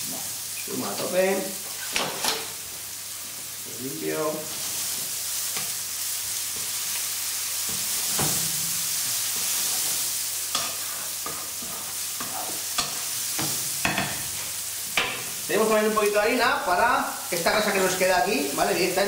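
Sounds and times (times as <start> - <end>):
vegetables sizzling in a frying pan: 0.0 - 19.0
wooden spoon stirring in a pan: 4.4 - 18.8.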